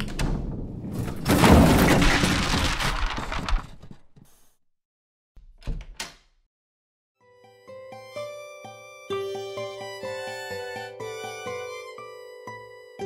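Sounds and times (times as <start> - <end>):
cartoon breaking crash: 1.0 - 3.9.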